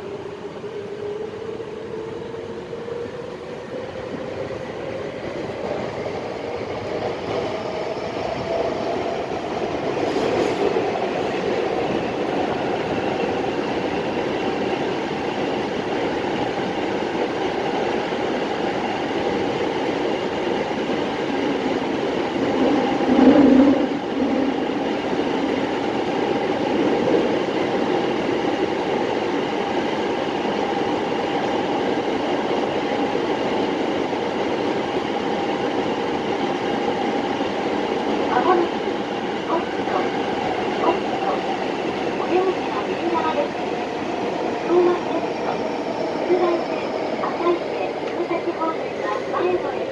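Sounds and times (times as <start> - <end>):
train rumbling in tunnel: 0.0 - 49.9.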